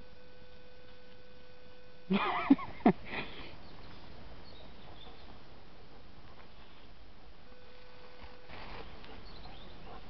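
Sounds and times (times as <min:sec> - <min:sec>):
dog digging: 0:08.2 - 0:10.0.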